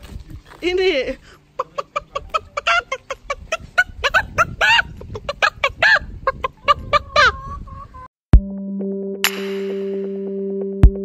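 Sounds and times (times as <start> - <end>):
hens clucking: 1.3 - 8.1.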